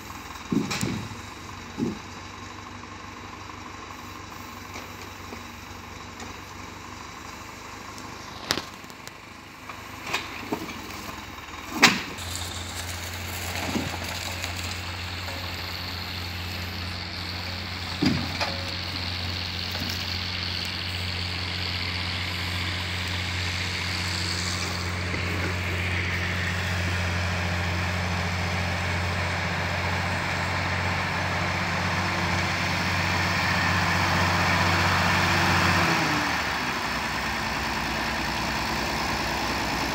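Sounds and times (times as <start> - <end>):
tractor diesel engine running: 0.0 - 39.9
sharp knocks of loading crane: 0.3 - 2.3, 9.7 - 12.2, 17.8 - 18.9.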